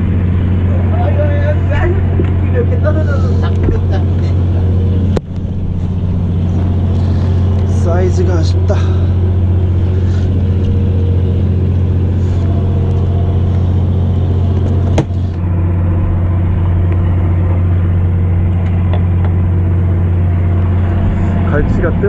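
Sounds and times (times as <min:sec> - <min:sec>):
boat engine humming: 0:00.0 - 0:22.0.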